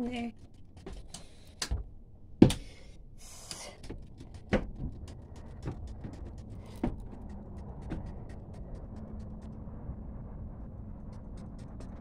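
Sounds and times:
footsteps on wooden steps: 3.6 - 9.4.

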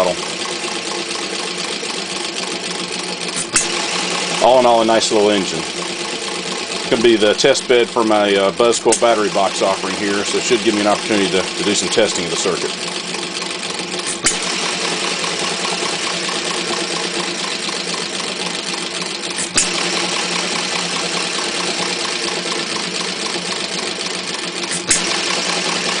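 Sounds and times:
engine mechanical clatter: 0.0 - 26.0
engine firing bang: 14.0 - 15.2, 24.7 - 25.9.

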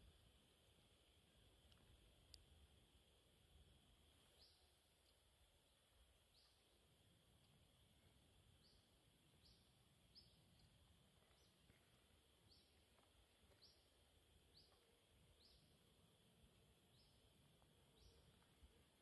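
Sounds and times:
small bird chirping: 4.1 - 19.0.

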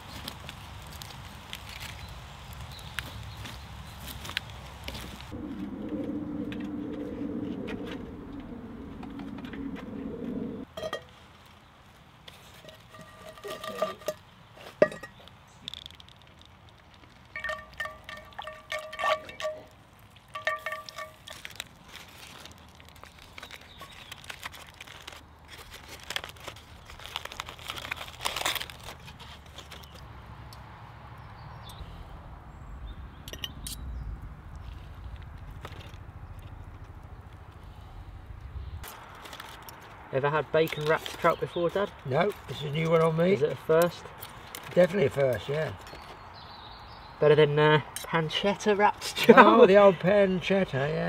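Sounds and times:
aluminium foil crinkling: 0.0 - 3.3, 15.6 - 30.1, 38.8 - 40.0, 40.6 - 45.8
steady low sound: 5.3 - 10.6, 31.8 - 38.8.

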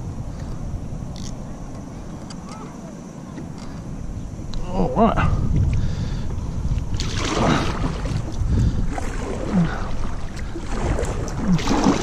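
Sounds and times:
wind rumble on microphone: 0.0 - 12.0
kayak paddle splashing in water: 7.0 - 12.0.

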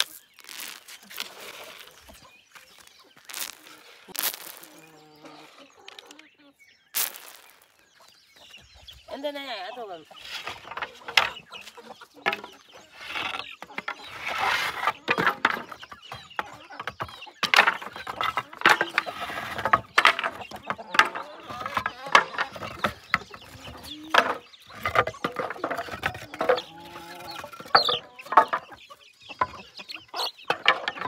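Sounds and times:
chickens clucking: 0.0 - 31.0
wooden boards scraping and clacking: 10.2 - 31.0.

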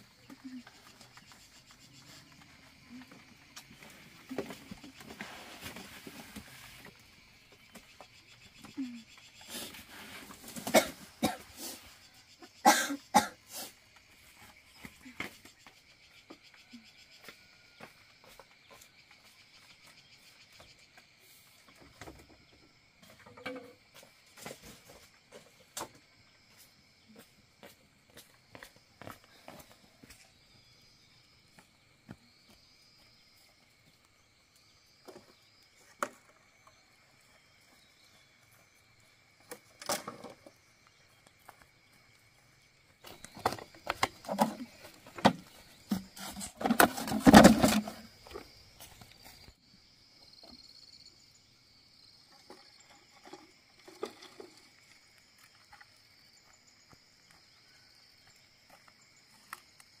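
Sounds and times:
forest insects droning: 0.0 - 60.0
bamboo poles and wood knocking: 21.9 - 24.7, 43.0 - 48.5.

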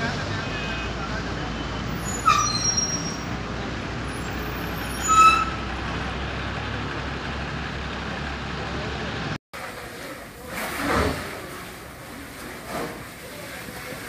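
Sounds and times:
traffic noise: 0.0 - 14.0
large vehicle engine running: 5.6 - 9.9.

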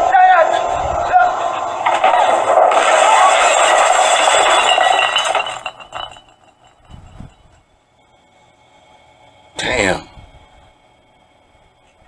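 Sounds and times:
loud dense film soundtrack noise: 0.0 - 4.4.

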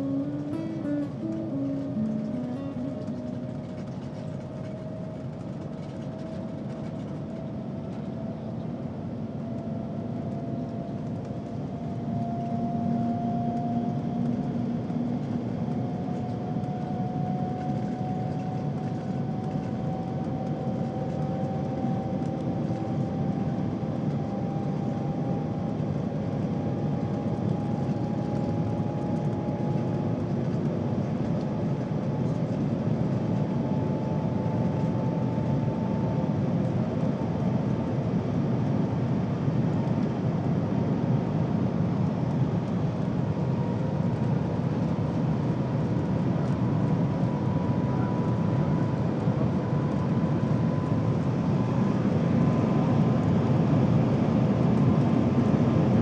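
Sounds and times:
thin rising whine: 0.0 - 4.4
train cabin rumbling rush: 0.0 - 9.0.

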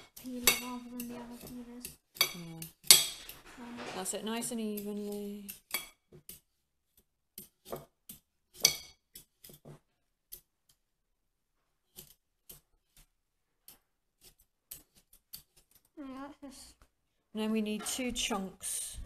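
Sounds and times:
peeler scraping cucumber skin: 11.8 - 13.2, 14.2 - 15.9.

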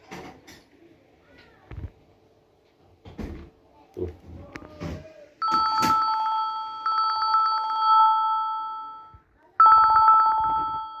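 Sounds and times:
trilling telephone ringtone: 5.4 - 11.0.

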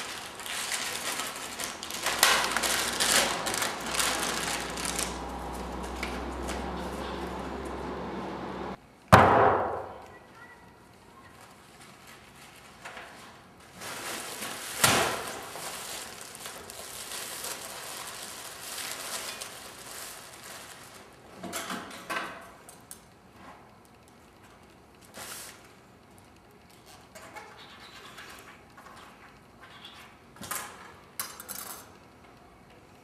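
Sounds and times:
plastic bag rustling: 0.0 - 8.0, 11.4 - 21.4.

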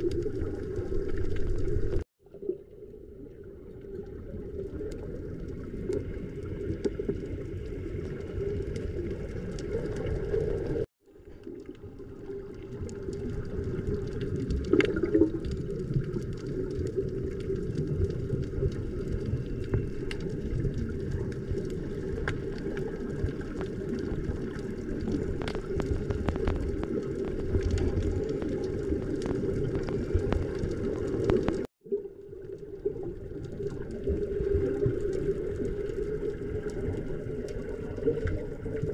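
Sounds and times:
muffled underwater rumble: 0.0 - 38.9.

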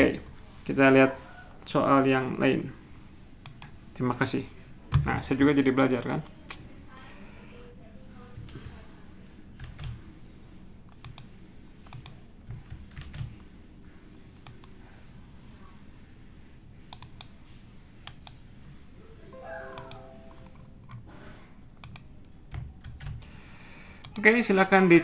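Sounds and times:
computer keyboard clicks: 3.4 - 3.8, 10.9 - 11.3, 11.9 - 13.3, 21.8 - 23.3.

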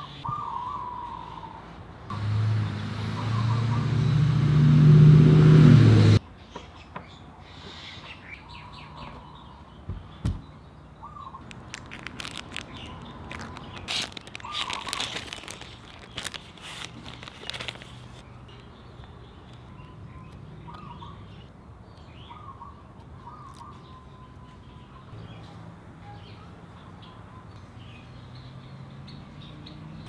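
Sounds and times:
birds chirping: 2.5 - 4.6, 6.4 - 30.0
plastic bag crinkling: 11.4 - 18.2.

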